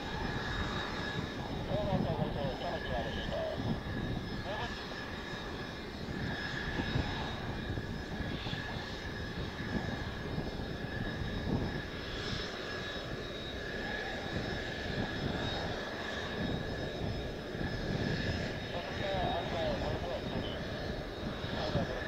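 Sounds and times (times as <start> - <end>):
wind buffeting microphone: 0.0 - 12.3, 14.0 - 22.0
jet engines idling: 0.0 - 22.0.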